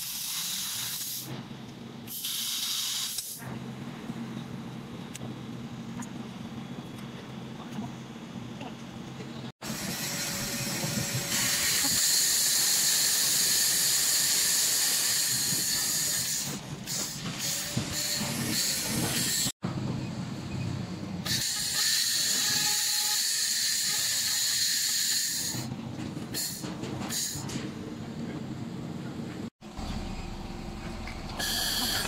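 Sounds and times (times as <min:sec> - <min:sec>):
laser cleaning hiss: 0:02.1 - 0:03.4, 0:31.4 - 0:32.0.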